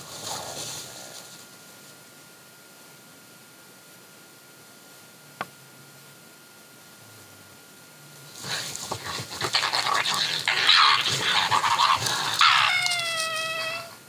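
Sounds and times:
animals fighting with rasping calls: 0:08.4 - 0:14.0
drawn-out whining cry: 0:08.8 - 0:14.0.

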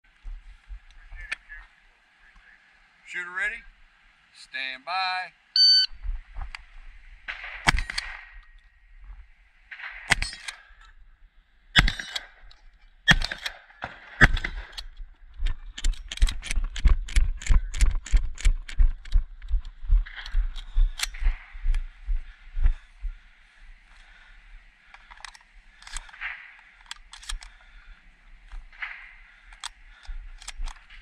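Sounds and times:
shotgun shots: 0:07.3 - 0:08.4, 0:09.7 - 0:10.6, 0:11.8 - 0:12.4, 0:13.1 - 0:14.8.

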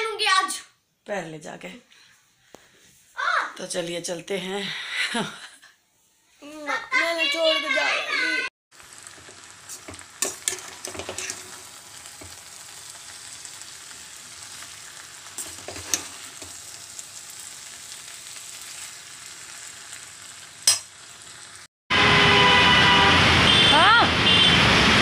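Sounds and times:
vegetables sizzling in pan: 0:07.8 - 0:21.7
spatula clinking and scraping pan: 0:09.2 - 0:11.6, 0:15.4 - 0:16.6, 0:20.6 - 0:21.0.

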